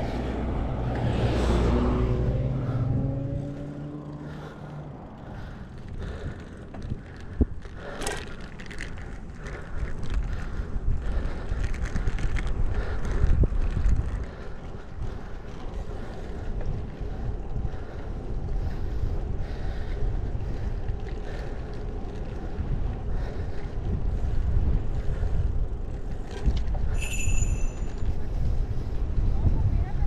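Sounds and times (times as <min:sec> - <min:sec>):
bicycle tyre rumble on asphalt: 0:00.0 - 0:30.0
wind buffeting microphone: 0:00.0 - 0:30.0.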